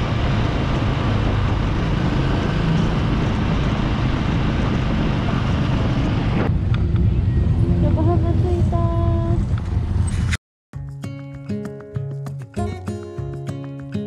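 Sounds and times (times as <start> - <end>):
motorcycle engine running: 0.0 - 10.3.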